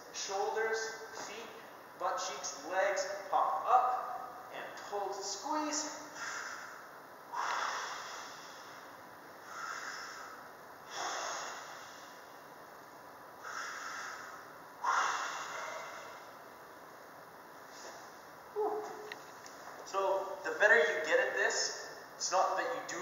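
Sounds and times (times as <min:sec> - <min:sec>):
man breathing hard: 0:06.1 - 0:12.4, 0:13.4 - 0:16.4.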